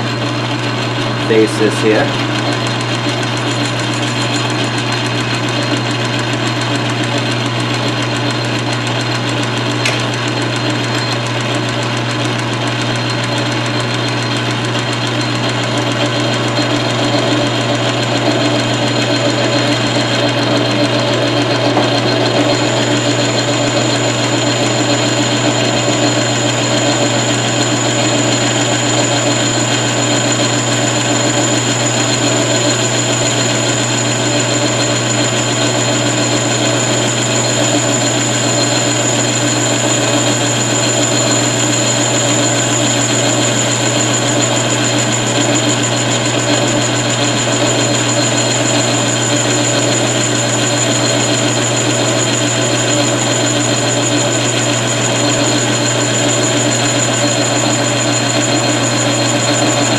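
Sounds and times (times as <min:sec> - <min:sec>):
lathe motor hum: 0:00.0 - 0:59.9
short click: 0:09.8 - 0:10.1.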